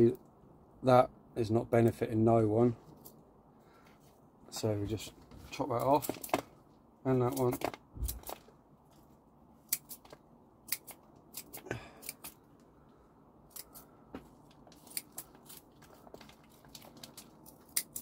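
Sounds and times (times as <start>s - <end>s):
secateurs snipping dry stems: 9.7s - 12.4s, 13.5s - 13.9s, 14.5s - 15.7s, 16.6s - 18.0s.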